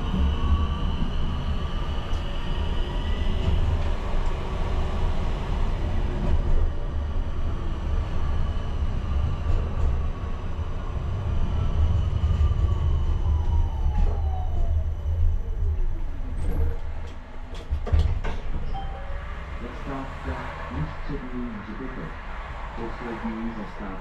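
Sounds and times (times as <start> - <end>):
tram running with low rumble: 0.0 - 24.0.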